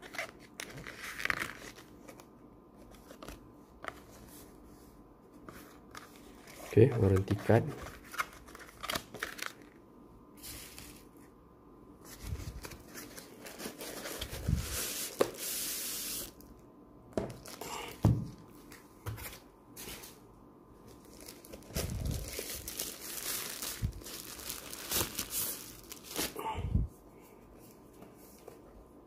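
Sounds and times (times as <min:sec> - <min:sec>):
plastic packaging crinkling: 0:06.4 - 0:09.8, 0:20.9 - 0:26.4.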